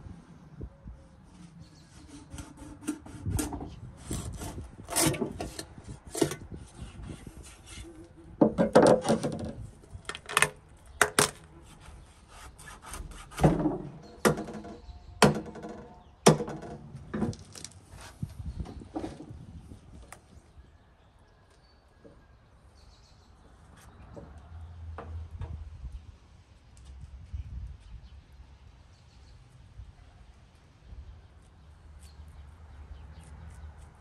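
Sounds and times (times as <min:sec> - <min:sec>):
sharp knocks and cracks: 0:13.3 - 0:17.8.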